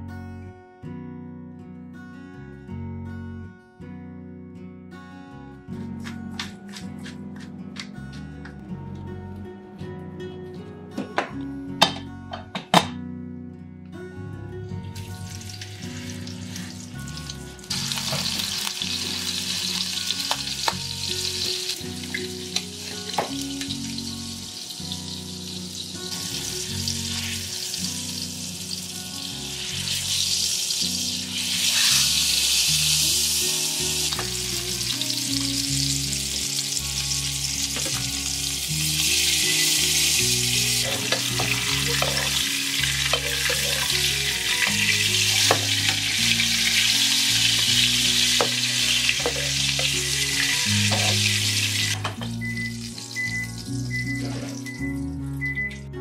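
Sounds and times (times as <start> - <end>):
meat sizzling in a frying pan: 15.3 - 52.0.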